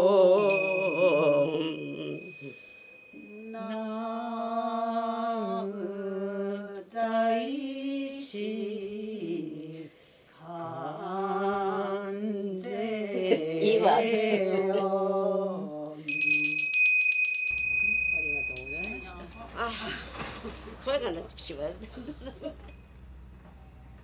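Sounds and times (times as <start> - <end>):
women chanting: 0.0 - 2.6, 3.2 - 16.0
bell ringing: 0.4 - 4.1, 16.1 - 19.9.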